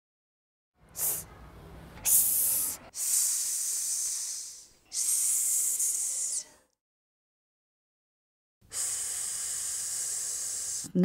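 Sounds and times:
child making hissing s sound: 0.9s - 1.3s, 2.0s - 6.6s, 8.7s - 11.0s.

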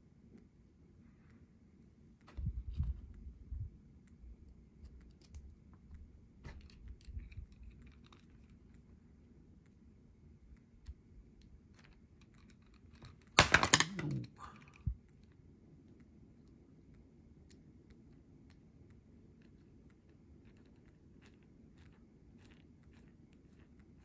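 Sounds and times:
light clicks of small parts handled: 2.2s - 9.8s.

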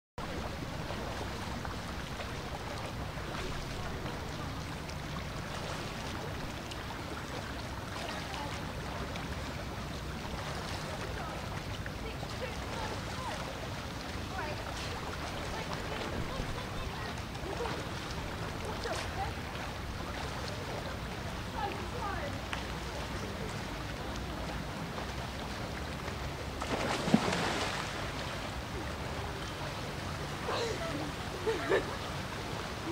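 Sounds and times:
water lapping and bubbling: 0.2s - 32.9s
water splash: 26.4s - 29.4s.

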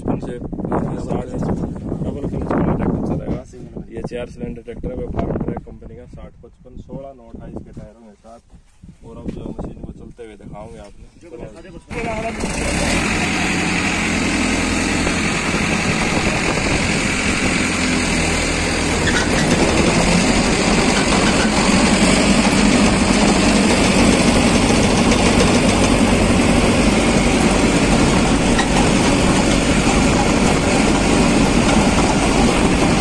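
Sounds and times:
tractor engine running under load: 11.9s - 33.0s.

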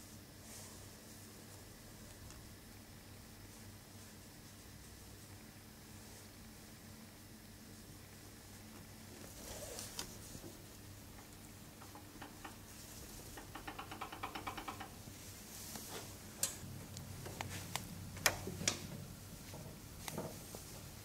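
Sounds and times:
sharp clicks and knocks: 11.8s - 12.6s, 13.3s - 15.0s, 16.4s - 20.4s.

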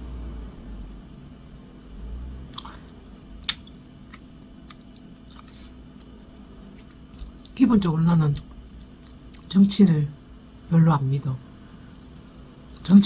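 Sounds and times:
wet mouth clicks: 2.5s - 6.1s
person chewing: 2.5s - 9.5s.

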